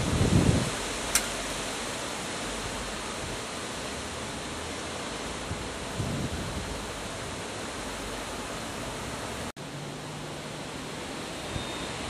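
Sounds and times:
wind rushing on microphone: 0.0 - 1.7, 5.3 - 7.5.

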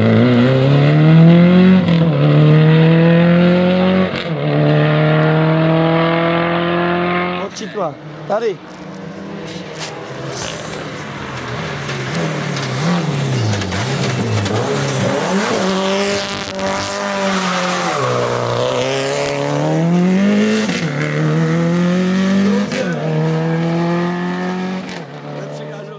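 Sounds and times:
rally car engine revving: 0.0 - 25.9
gear upshifts: 7.1 - 20.0.

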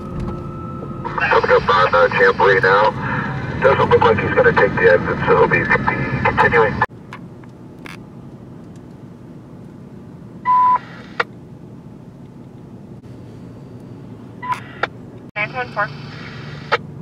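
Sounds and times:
radio scanner hiss: 1.1 - 2.9, 14.5 - 16.8
short loud beep: 10.5 - 10.8.

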